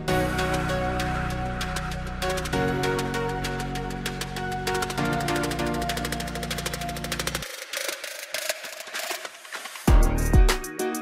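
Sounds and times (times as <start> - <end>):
background music with sustained chords: 0.0 - 7.4
fast ticking beat: 4.8 - 10.7.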